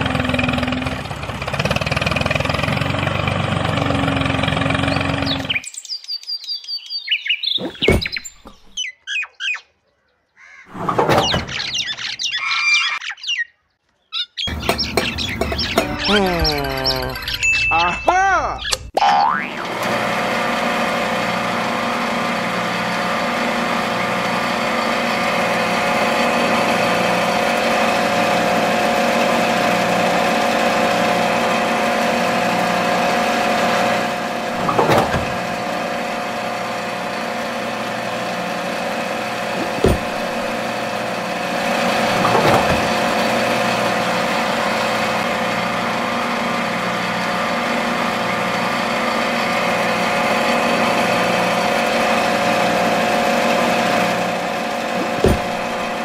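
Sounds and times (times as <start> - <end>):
small motor humming: 0.0 - 5.6, 19.2 - 56.0
short knocks: 55.0 - 55.8.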